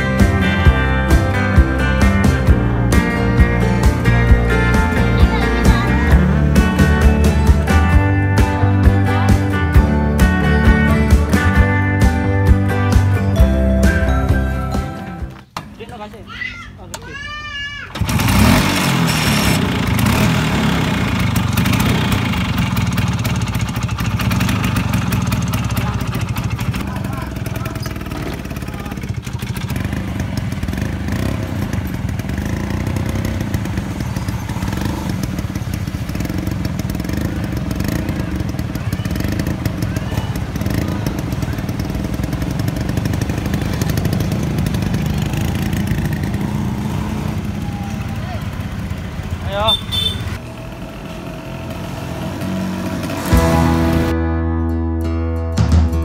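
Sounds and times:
scooter engine running: 0:00.0 - 0:12.1, 0:17.9 - 0:54.2.

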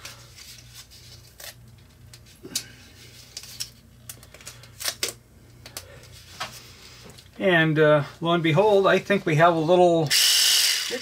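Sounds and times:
tape rustling and handling clicks: 0:00.0 - 0:07.3.

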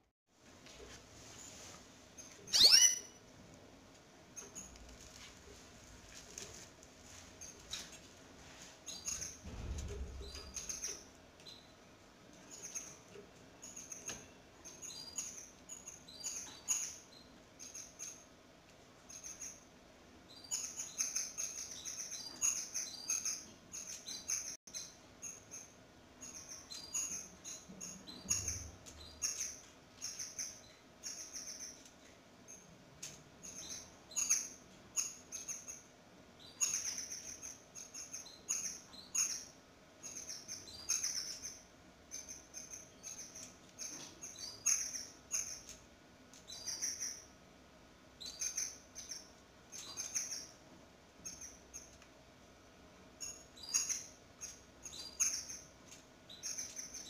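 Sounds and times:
canaries chirping: 0:02.1 - 0:03.3, 0:08.8 - 0:18.4, 0:19.0 - 0:47.4, 0:48.1 - 0:52.1, 0:53.1 - 0:57.0
low bump: 0:09.4 - 0:10.8.

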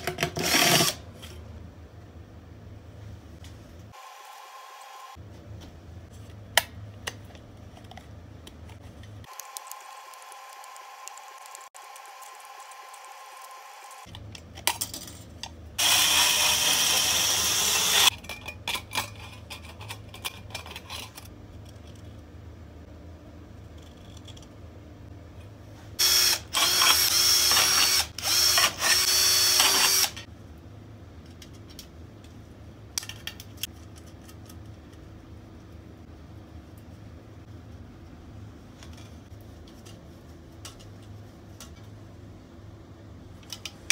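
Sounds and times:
power drill drilling sheet metal: 0:15.8 - 0:18.1, 0:26.0 - 0:30.2.

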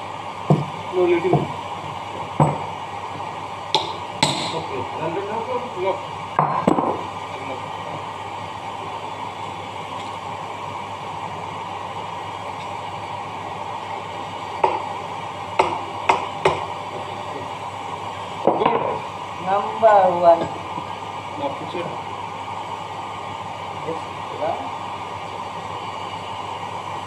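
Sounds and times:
steady rushing hum: 0:00.0 - 0:27.0
hammer tapping on metal: 0:15.6 - 0:16.7.

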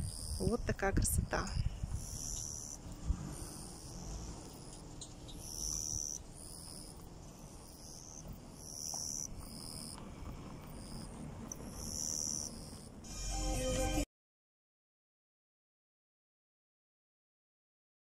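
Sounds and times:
insects trilling: 0:00.0 - 0:00.6, 0:01.7 - 0:13.4
wind rumbling on microphone: 0:00.0 - 0:13.0.

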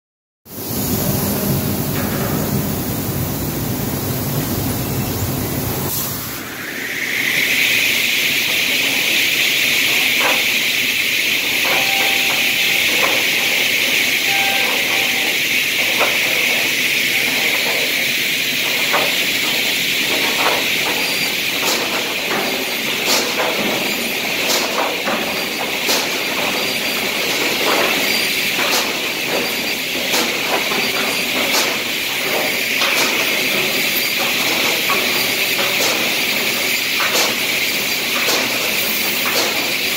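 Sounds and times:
saw line hiss: 0:03.8 - 0:21.6.

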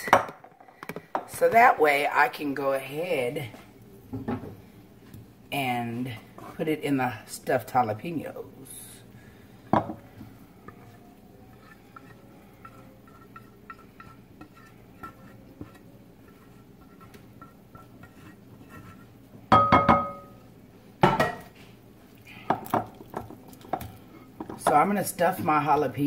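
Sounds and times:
spatula scraping skillet: 0:05.9 - 0:07.1, 0:09.4 - 0:19.5
cookware knock with ringing tone: 0:19.5 - 0:20.4.

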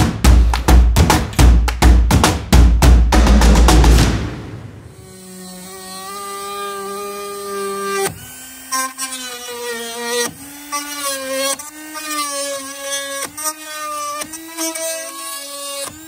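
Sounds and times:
rotary tool grinding fibreglass: 0:04.9 - 0:16.0.

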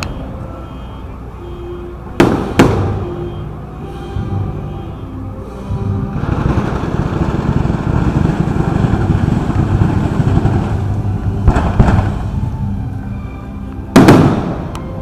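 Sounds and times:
fireworks bangs and crackling: 0:02.2 - 0:03.5, 0:05.7 - 0:13.2, 0:13.8 - 0:15.0.

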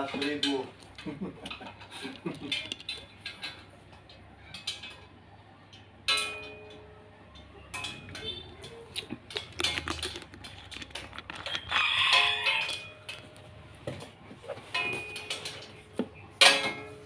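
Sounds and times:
metal clinks and taps: 0:09.2 - 0:13.5.

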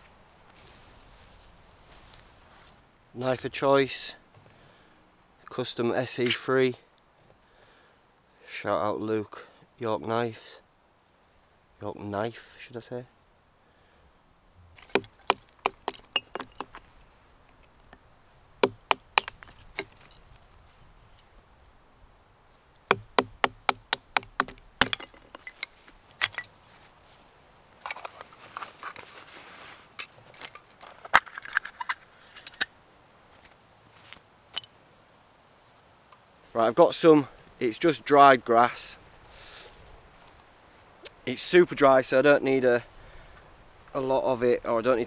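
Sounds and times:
wooden knocks batoning knife: 0:22.9 - 0:25.5.

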